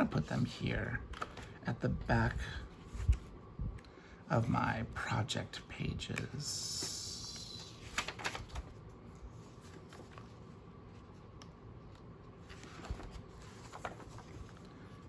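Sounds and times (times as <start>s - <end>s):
paper rustling: 1.1s - 1.6s, 6.8s - 15.0s.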